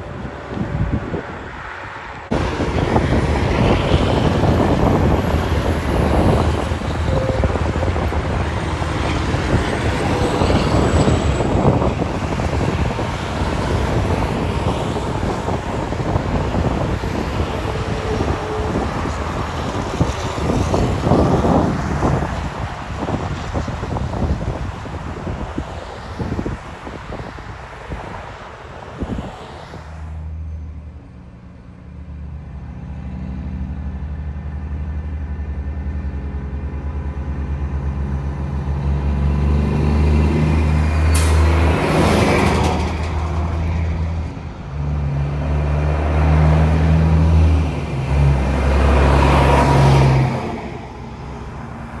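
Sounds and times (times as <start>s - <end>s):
truck diesel engine: 0.0s - 29.2s, 30.1s - 52.0s
wind buffeting microphone: 0.0s - 30.3s.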